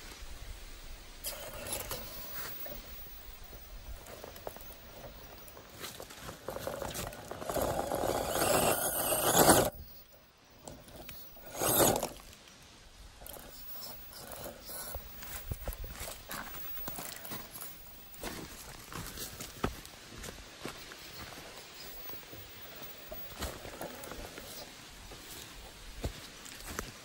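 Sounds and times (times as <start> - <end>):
rc car motor and tires grinding: 1.2 - 12.4, 13.2 - 17.8, 21.0 - 24.7
loud short scrape: 7.6 - 9.8, 11.4 - 12.2.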